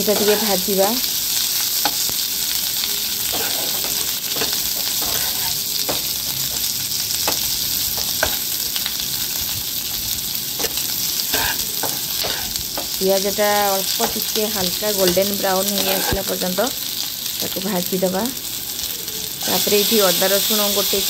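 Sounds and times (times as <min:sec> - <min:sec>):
spatula scraping a pan: 0:00.0 - 0:00.8, 0:03.2 - 0:08.8, 0:10.6 - 0:13.0, 0:13.9 - 0:16.4
onions sizzling in oil: 0:00.0 - 0:21.0.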